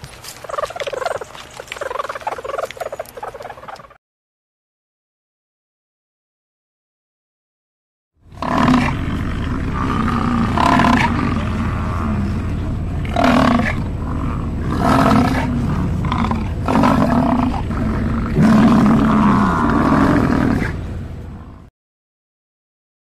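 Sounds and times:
bison bellowing: 0:08.3 - 0:21.7
low rumble: 0:08.3 - 0:21.7.

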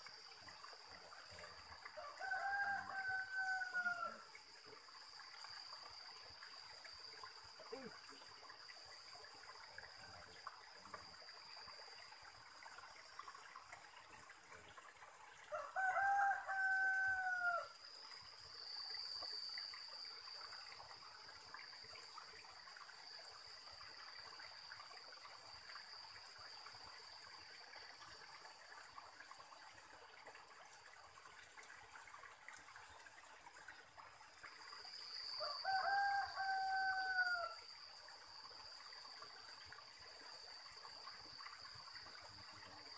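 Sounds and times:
rooster crowing: 0:02.0 - 0:04.2, 0:15.5 - 0:17.7, 0:35.4 - 0:37.6.

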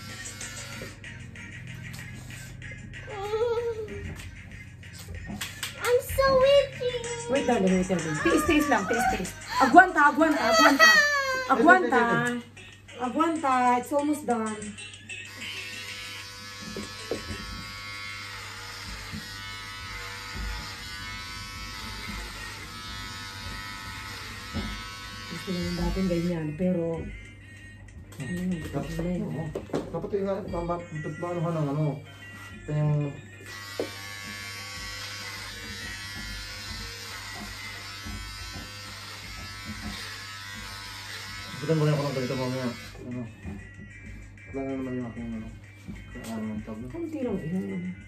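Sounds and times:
electric hair clippers buzzing: 0:00.0 - 0:02.5, 0:05.0 - 0:12.5, 0:15.2 - 0:26.6, 0:33.4 - 0:43.3.

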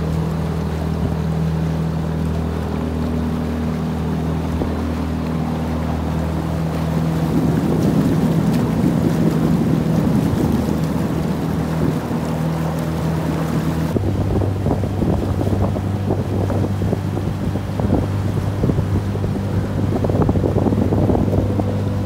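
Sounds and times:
outboard engine running: 0:00.0 - 0:22.0
water noise: 0:00.0 - 0:22.0
wind buffeting microphone: 0:00.0 - 0:22.0.

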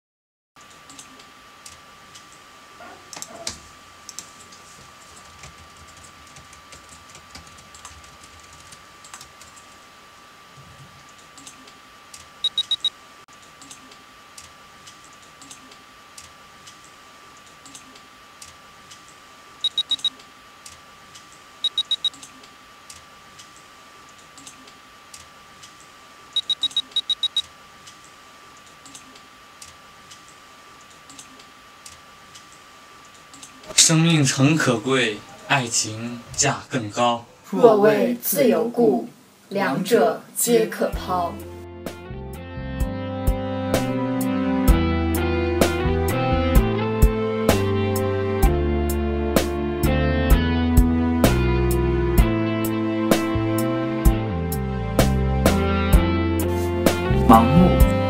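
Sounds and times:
laptop keyboard typing: 0:05.0 - 0:09.6
faint high whine: 0:11.4 - 0:14.3, 0:17.0 - 0:20.8, 0:21.4 - 0:32.0
high electronic beeps: 0:12.4 - 0:12.9, 0:19.6 - 0:20.2, 0:21.6 - 0:22.2, 0:26.4 - 0:27.5.

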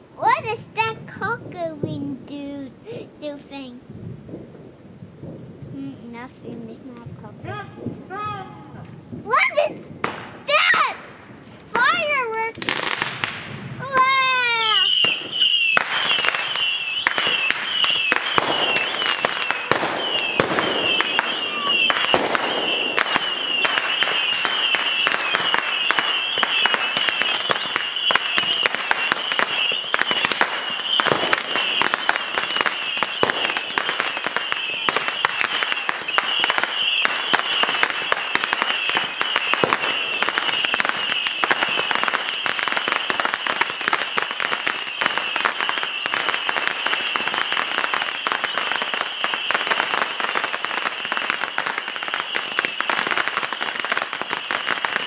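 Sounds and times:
fireworks cracks and bangs: 0:00.0 - 0:55.0
high firework whistle: 0:14.1 - 0:55.0.

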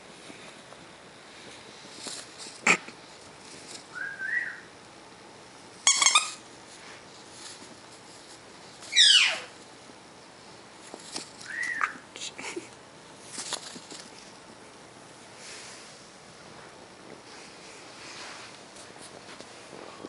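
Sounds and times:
parrot chirping and squawking: 0:05.8 - 0:06.4, 0:08.9 - 0:09.6.

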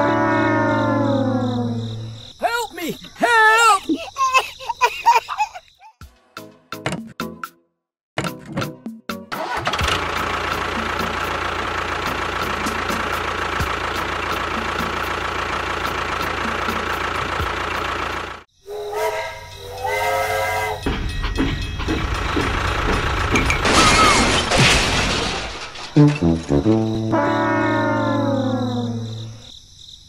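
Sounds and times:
miniature tractor running: 0:09.4 - 0:18.4
toy steam whistle toots: 0:18.6 - 0:20.9.

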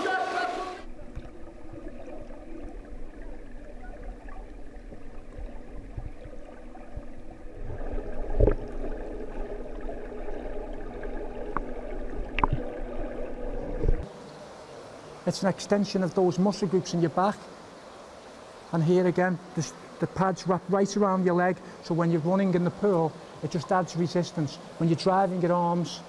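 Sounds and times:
water churning and gurgling: 0:00.0 - 0:14.1.

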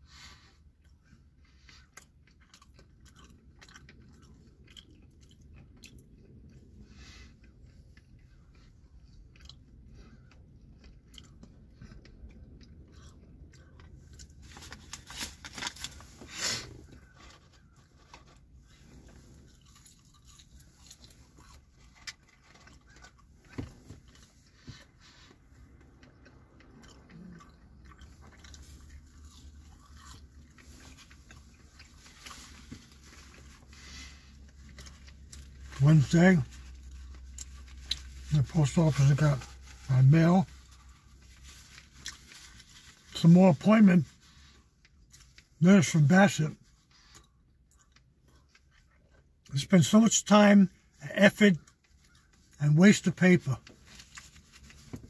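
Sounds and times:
person chewing: 0:00.1 - 0:39.9, 0:40.5 - 0:43.2, 0:46.7 - 0:49.5.

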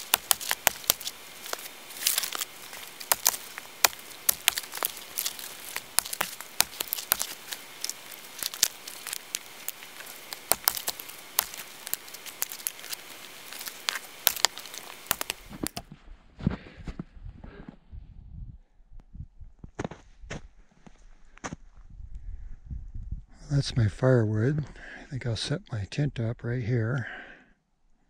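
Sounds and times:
dry twigs snapping: 0:00.0 - 0:15.8.

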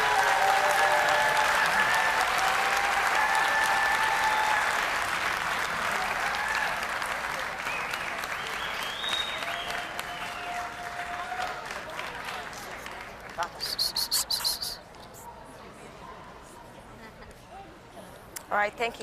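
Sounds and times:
audience cheering: 0:00.0 - 0:05.2, 0:05.8 - 0:11.8
audience clapping: 0:00.0 - 0:14.8.

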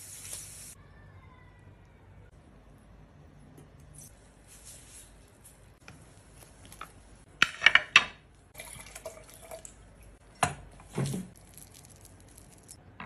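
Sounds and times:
wine pouring into a glass: 0:08.6 - 0:09.7.

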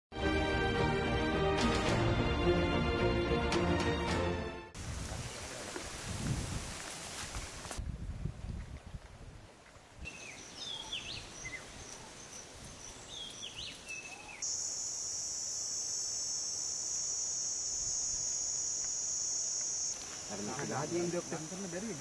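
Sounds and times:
birds chirping: 0:10.1 - 0:14.7
faint high insect whine: 0:11.2 - 0:22.0
high-pitched insect drone: 0:14.4 - 0:22.0.

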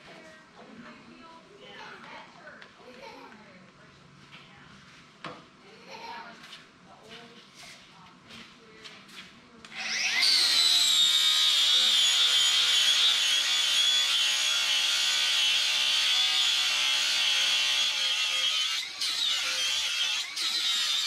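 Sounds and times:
angle grinder grinding steel: 0:09.7 - 0:21.0.

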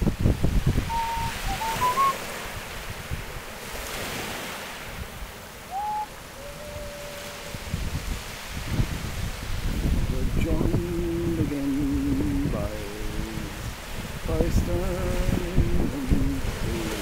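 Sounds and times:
sea surf breaking: 0:00.0 - 0:17.0
wind on microphone: 0:00.0 - 0:17.0
thin whistle-like notes: 0:00.9 - 0:02.2, 0:05.7 - 0:07.6.

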